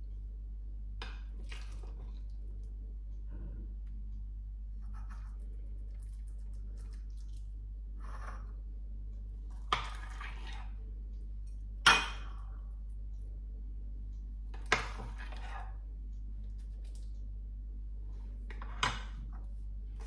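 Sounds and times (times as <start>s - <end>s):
steady low hum: 0.0s - 20.0s
wet squishes of trifle: 1.4s - 2.4s, 5.9s - 7.6s.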